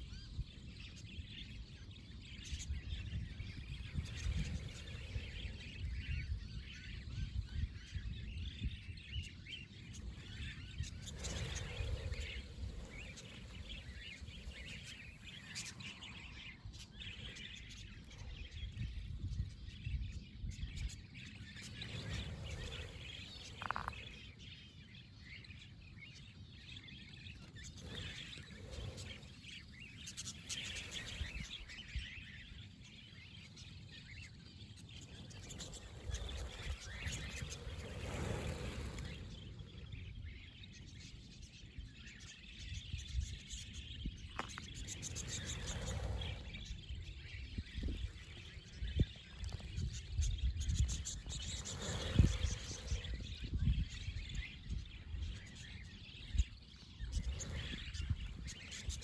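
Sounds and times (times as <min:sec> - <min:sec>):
budgerigars chirping: 0:21.6 - 0:24.4.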